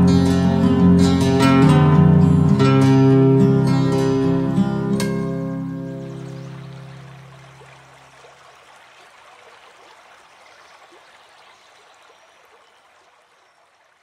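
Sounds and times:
water trickling and gurgling: 0:05.0 - 0:14.0.

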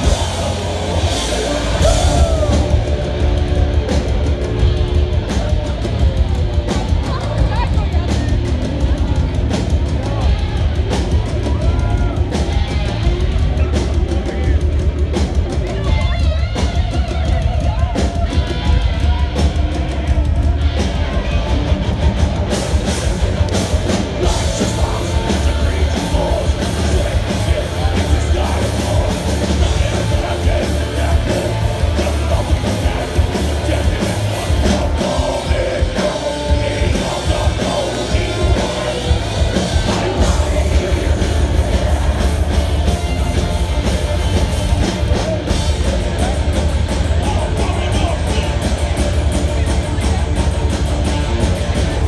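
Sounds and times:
live thrash metal band: 0:00.0 - 0:52.0.

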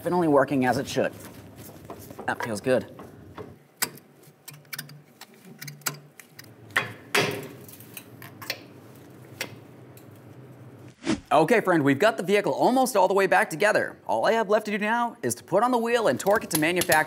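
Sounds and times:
metallic clicks and knocks: 0:01.9 - 0:07.5, 0:16.2 - 0:17.0.

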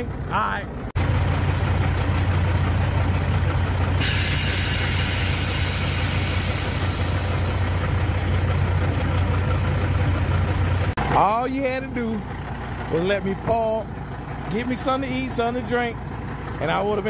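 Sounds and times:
diesel engine idling: 0:00.0 - 0:17.0
high hiss: 0:04.0 - 0:08.2.

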